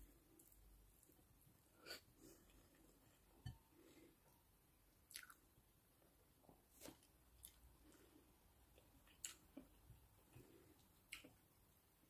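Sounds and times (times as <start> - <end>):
person chewing: 5.1 - 5.4, 6.8 - 8.0, 8.8 - 11.4.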